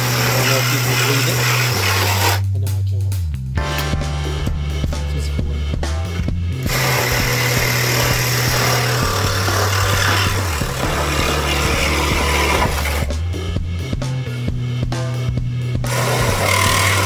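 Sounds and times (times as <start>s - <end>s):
power tool running: 0.0s - 2.4s, 6.6s - 13.1s, 15.8s - 17.0s
background music: 0.0s - 17.0s.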